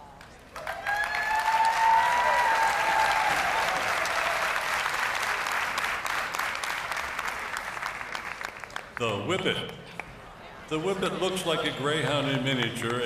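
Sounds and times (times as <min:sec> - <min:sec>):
audience applauding: 0:00.2 - 0:09.2.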